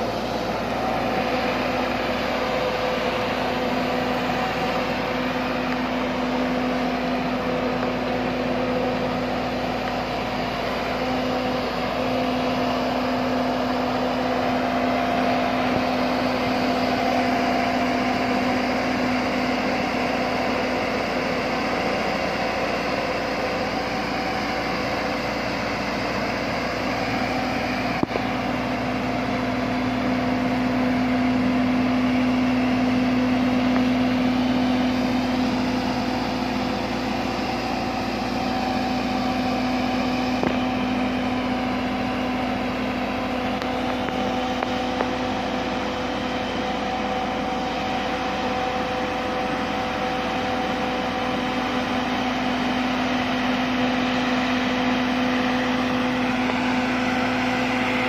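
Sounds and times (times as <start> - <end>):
boat hoist engine hum: 0.0 - 58.0.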